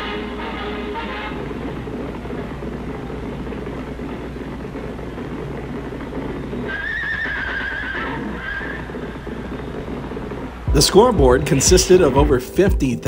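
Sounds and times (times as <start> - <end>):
low hum: 0.0 - 7.5, 8.1 - 13.0
steady noisy background: 0.0 - 13.0
horse whinny: 6.6 - 10.1.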